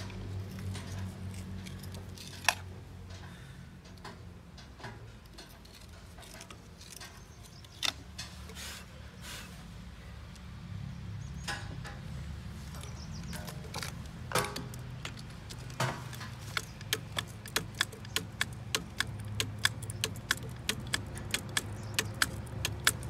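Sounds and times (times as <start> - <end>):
grease gun sharp clicks: 16.2 - 23.0.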